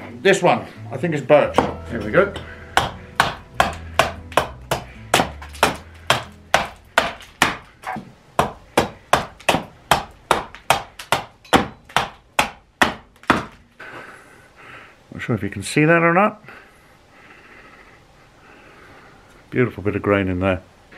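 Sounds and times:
axe chopping into wood: 1.5 - 13.6.

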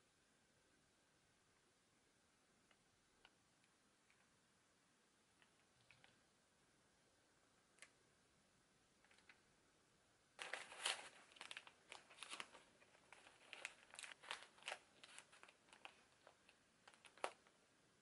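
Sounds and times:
wrapping paper crinkling: 10.4 - 17.5.

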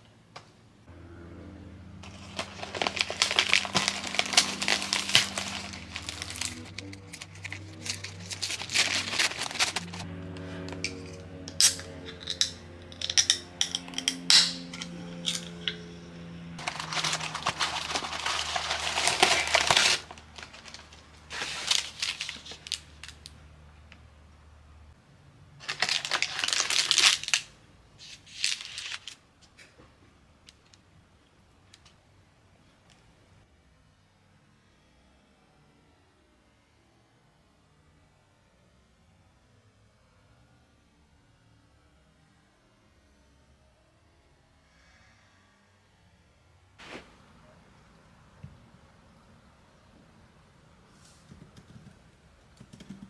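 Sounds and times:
paper bag crinkling: 2.0 - 10.1, 16.6 - 23.3, 25.6 - 29.2.

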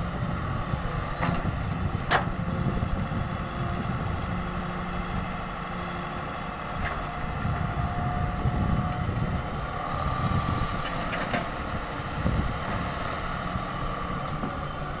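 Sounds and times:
excavator diesel engine under load: 0.0 - 15.0.

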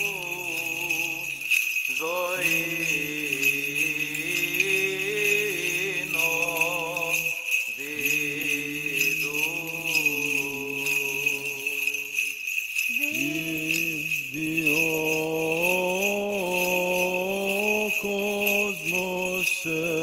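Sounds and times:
steady held vocal drone: 0.0 - 12.3, 12.9 - 20.0
steady high ringing: 0.0 - 19.8
person chanting a slow melody: 0.0 - 20.0.

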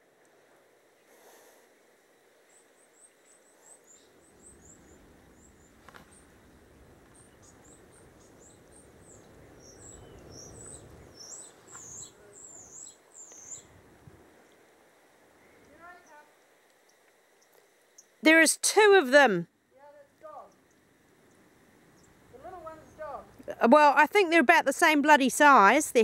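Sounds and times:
small bird chirping: 2.5 - 6.4, 7.1 - 13.8, 15.4 - 18.2, 19.9 - 23.5.

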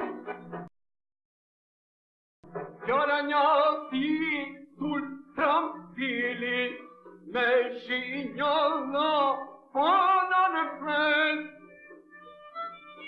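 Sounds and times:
man singing folk song: 2.8 - 11.6.

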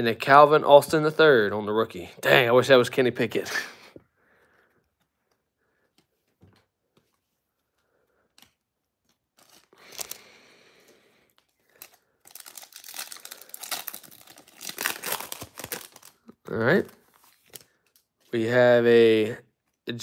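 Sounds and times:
foil pack crinkling and tearing: 9.3 - 10.3, 11.4 - 16.3.

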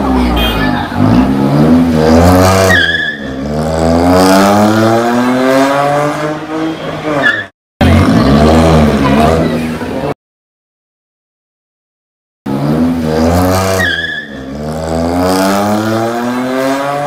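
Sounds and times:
car engine accelerating hard: 12.5 - 17.0.

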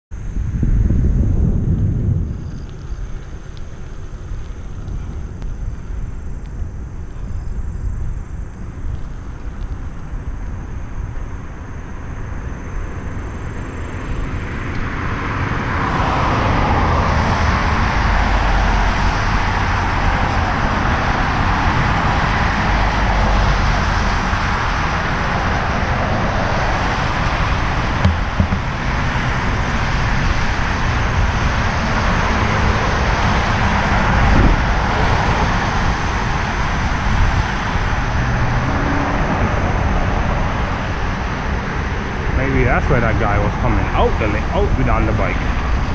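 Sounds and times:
low wind rumble: 0.1 - 45.9
cars passing on road: 0.2 - 45.9
short knocks: 28.0 - 28.7.

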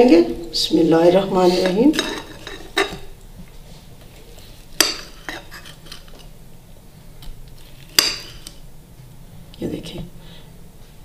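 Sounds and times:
knife clinking on plate: 1.6 - 3.1
knife slicing potato: 7.9 - 8.5.

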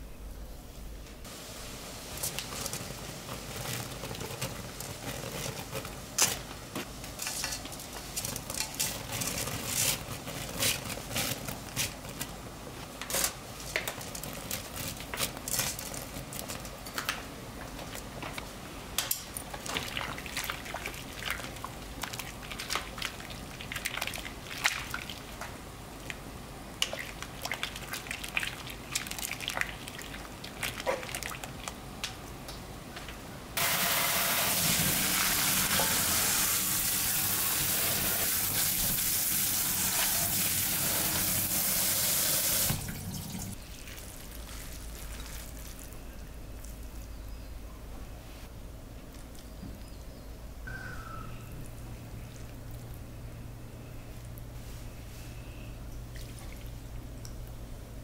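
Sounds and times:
boiling water bubbling: 1.3 - 6.1, 19.6 - 31.8
clicks and crackles of noodles: 2.1 - 33.2, 43.6 - 47.1
water gushing into a strainer: 33.6 - 43.6.

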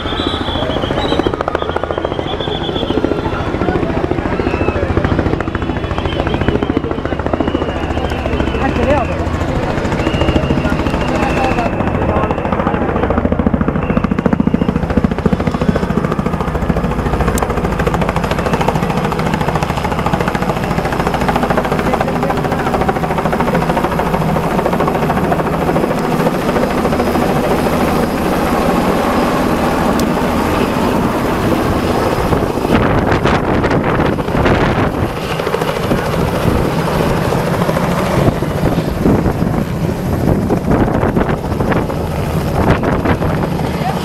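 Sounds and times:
helicopter engine noise: 0.0 - 44.0
helicopter rotor beating: 0.0 - 44.0.

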